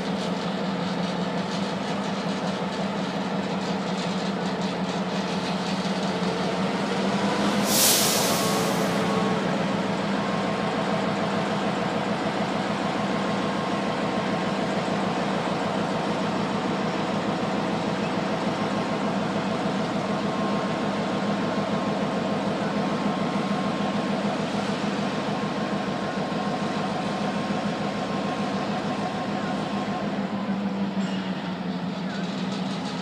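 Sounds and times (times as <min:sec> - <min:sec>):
diesel locomotive engine droning: 0:00.0 - 0:33.0.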